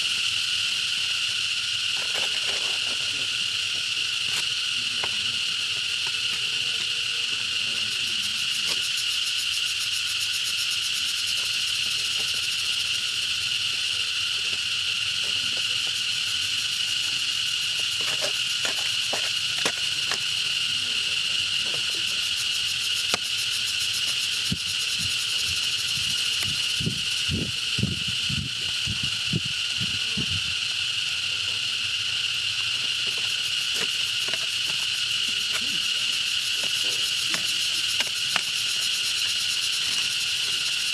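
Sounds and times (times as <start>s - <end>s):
insect chorus buzzing drone: 0.0s - 40.9s.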